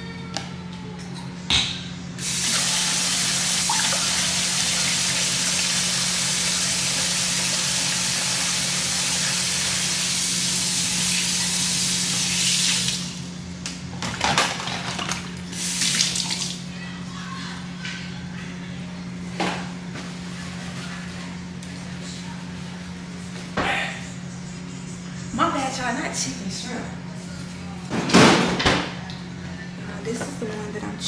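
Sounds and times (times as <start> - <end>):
faucet running: 2.2 - 13.2, 15.5 - 16.6.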